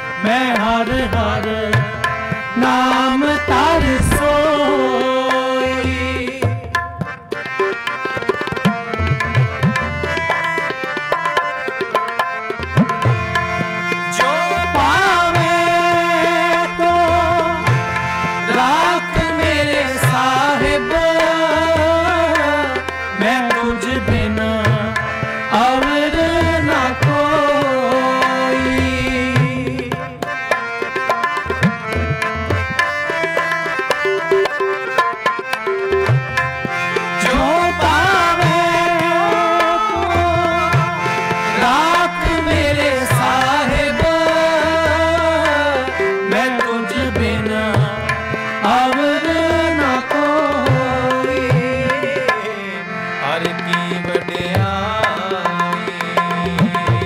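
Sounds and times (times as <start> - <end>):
harmonium holding steady notes: 0.0 - 57.0
tabla rhythm: 0.0 - 57.0
man singing a devotional hymn: 0.1 - 6.7, 14.1 - 30.3, 37.2 - 57.0.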